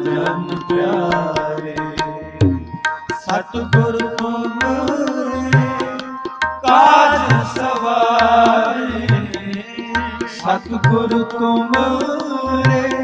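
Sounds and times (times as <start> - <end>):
sustained melodic accompaniment: 0.0 - 13.0
tabla playing rhythm: 0.0 - 13.0.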